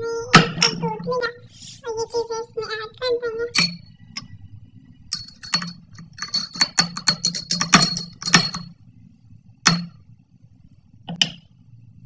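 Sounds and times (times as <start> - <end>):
spoon clinking in glass bowl: 3.6 - 3.8, 5.1 - 8.7.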